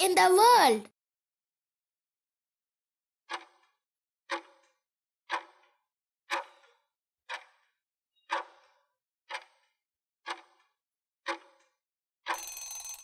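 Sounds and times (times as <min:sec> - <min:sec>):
clock-like timer ticks: 0:03.3 - 0:13.0.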